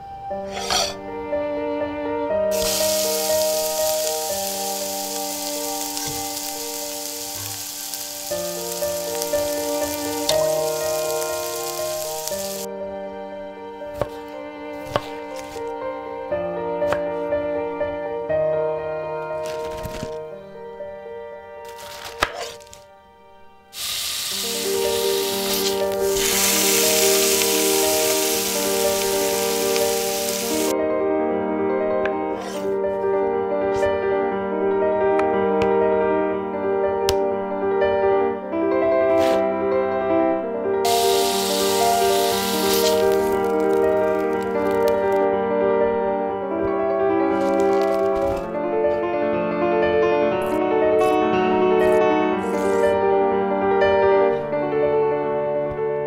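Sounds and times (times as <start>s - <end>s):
background music with chords: 0.0s - 19.4s, 20.2s - 47.4s
frying sizzle: 2.5s - 12.7s, 23.8s - 30.7s, 40.9s - 45.2s, 47.3s - 48.4s, 52.4s - 52.9s.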